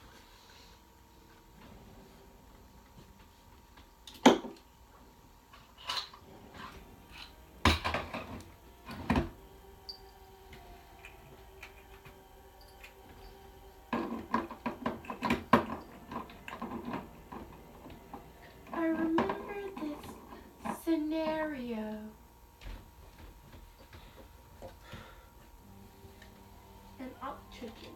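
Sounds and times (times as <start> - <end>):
rattling and tapping: 5.5 - 10.1, 11.0 - 21.4
objects knocking on wooden desk: 13.9 - 18.0.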